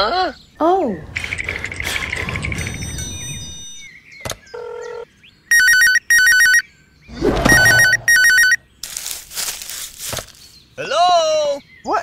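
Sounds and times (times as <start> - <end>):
telephone ringing: 4.6 - 6.6, 7.4 - 8.6
short beep: 7.4 - 8.6.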